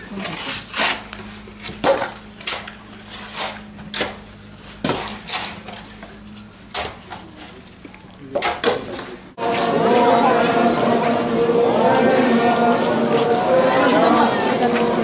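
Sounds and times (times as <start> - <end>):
metal basins clanking with mud: 1.8 - 5.9, 8.3 - 9.1.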